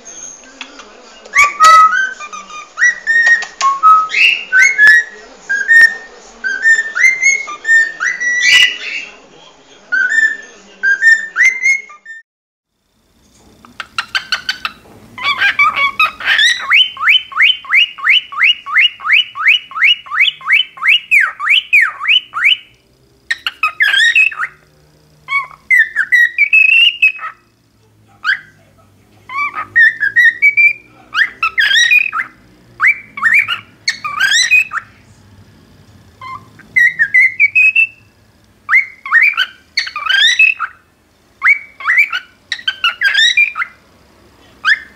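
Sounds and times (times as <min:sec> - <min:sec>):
cockatiel whistling and chirping: 0:01.4 - 0:09.1, 0:10.0 - 0:12.2, 0:13.9 - 0:22.7, 0:23.3 - 0:24.6, 0:25.3 - 0:27.5, 0:29.3 - 0:34.9, 0:36.2 - 0:38.1, 0:38.7 - 0:43.8, 0:44.6 - 0:44.9.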